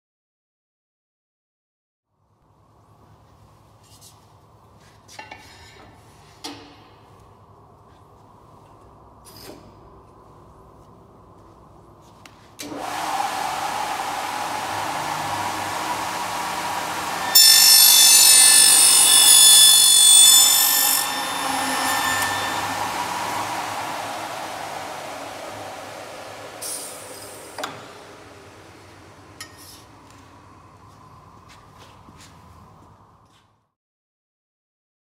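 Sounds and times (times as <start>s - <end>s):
milling machine motor: 12.7s - 29.3s
high-pitched cutter screech: 12.9s - 28.3s.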